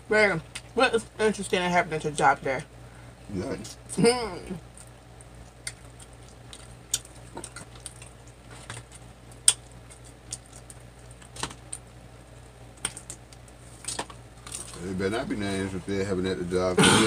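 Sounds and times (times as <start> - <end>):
faint low hum: 0.0 - 17.0
chewing crunches and smacks: 4.6 - 14.8.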